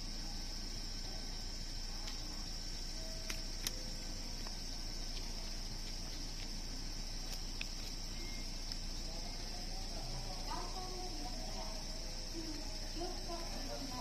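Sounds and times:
high-pitched whine: 0.0s - 14.0s.

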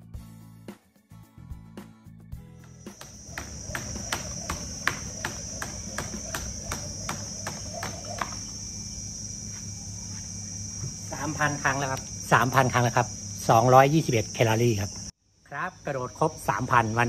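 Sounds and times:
insects droning: 2.5s - 17.0s
skipping rope slapping a mat: 2.9s - 8.4s.

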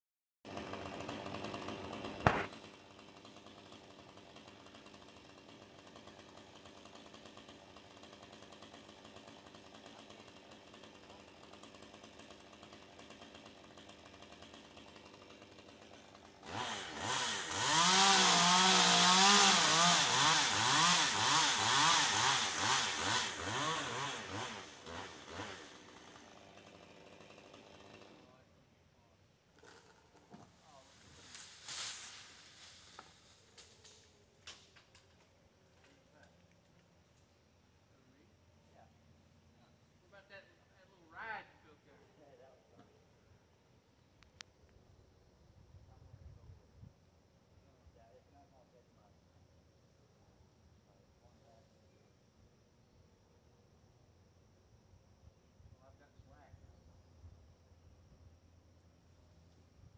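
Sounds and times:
chainsaw cutting: 0.5s - 28.5s, 29.5s - 36.3s.

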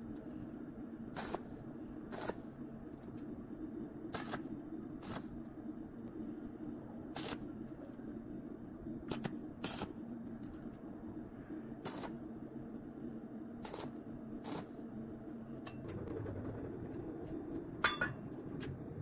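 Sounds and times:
steady low hum: 0.0s - 19.0s
welding arc bursts: 1.2s - 1.5s, 2.1s - 2.4s, 4.1s - 4.4s, 5.0s - 5.4s, 7.2s - 7.4s, 9.1s - 10.0s, 11.8s - 12.2s, 13.6s - 14.8s.

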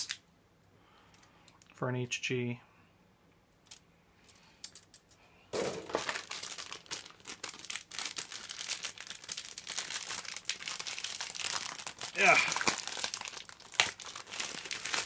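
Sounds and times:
plastic bags crinkling: 5.6s - 15.0s.

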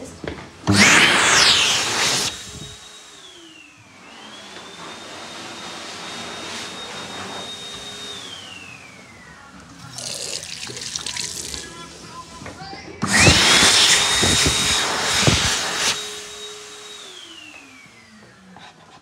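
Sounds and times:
dryer motor whining: 0.0s - 19.0s
hand dryer air blast: 0.6s - 9.1s, 9.9s - 18.0s
tap running: 9.6s - 15.5s.

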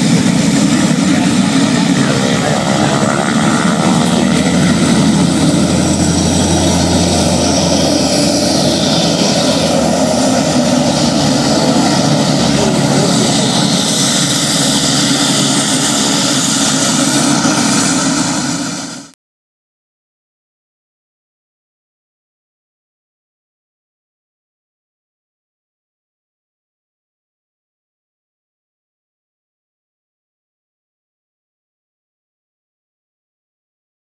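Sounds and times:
propeller drone: 0.0s - 19.2s.

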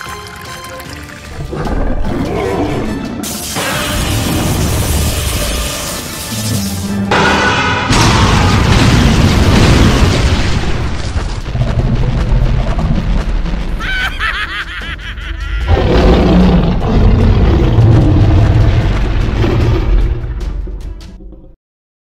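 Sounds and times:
cartoon soundtrack music: 0.0s - 8.8s, 13.7s - 21.6s
heavy booms: 7.1s - 13.8s.

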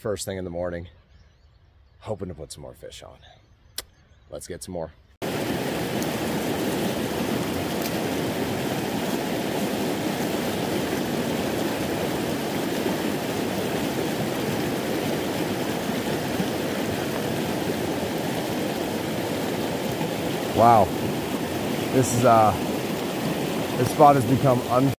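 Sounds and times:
water rushing over spillway: 5.2s - 24.9s.

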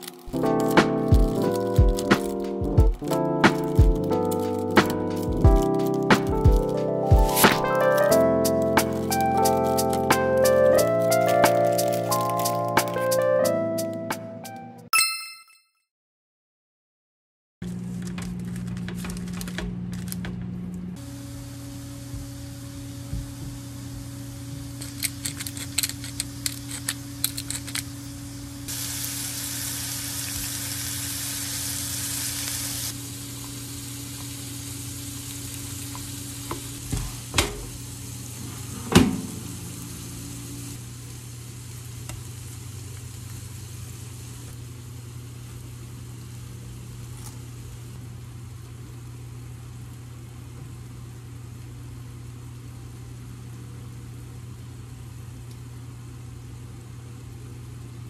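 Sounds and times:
shrimp sizzling in grill pan: 26.0s - 47.9s.

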